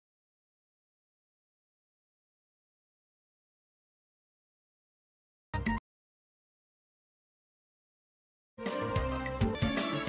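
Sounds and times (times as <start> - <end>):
snippet of music: 8.6 - 10.0.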